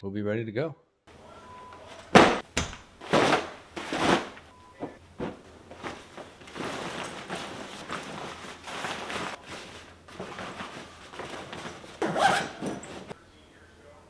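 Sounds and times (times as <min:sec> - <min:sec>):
fabric rustling: 0:01.9 - 0:13.2
bags thumping on carpet: 0:02.1 - 0:04.4.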